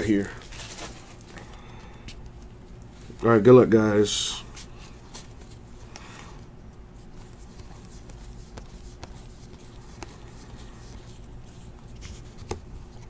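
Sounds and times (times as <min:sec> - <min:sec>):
trading cards flipped by hand: 0:07.0 - 0:13.0.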